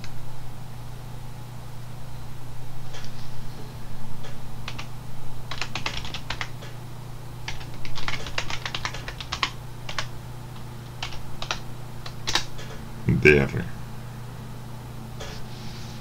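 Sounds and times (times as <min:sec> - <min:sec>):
computer keyboard typing: 0:04.7 - 0:04.9, 0:05.5 - 0:06.6, 0:07.4 - 0:10.1, 0:10.9 - 0:12.5.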